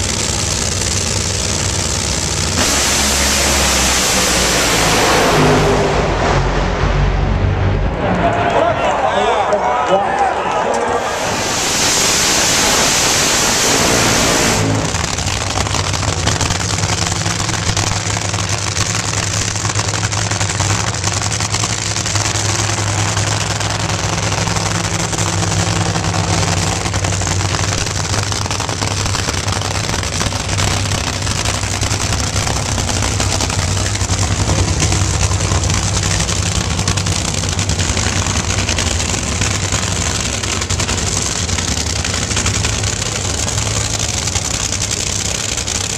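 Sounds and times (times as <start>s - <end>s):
race car engines at full throttle: 0.0s - 45.9s
race car engines idling: 0.0s - 45.9s.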